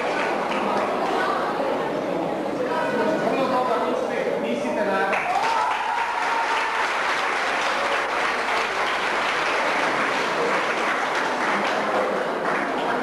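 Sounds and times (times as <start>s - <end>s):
audience applauding: 0.0s - 1.1s, 5.1s - 13.0s.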